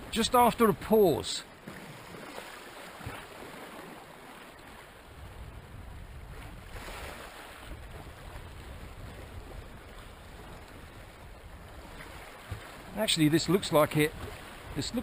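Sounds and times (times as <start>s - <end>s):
wind rumble on microphone: 5.1s - 12.9s, 13.9s - 15.0s.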